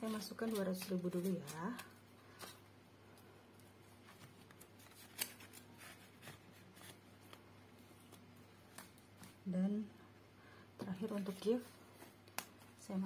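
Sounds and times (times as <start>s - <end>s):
banknotes and plastic pouch rustling: 0.0s - 2.7s.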